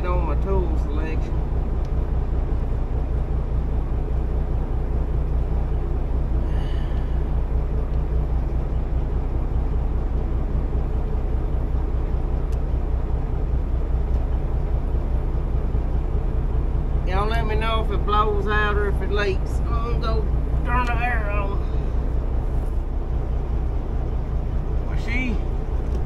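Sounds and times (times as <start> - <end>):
engine idling: 0.0 - 26.0.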